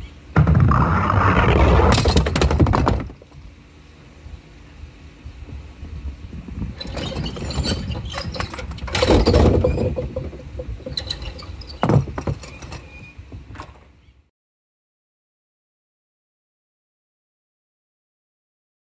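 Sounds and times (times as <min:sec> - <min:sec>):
bowling pins clattering: 0:01.7 - 0:03.3, 0:06.8 - 0:12.9.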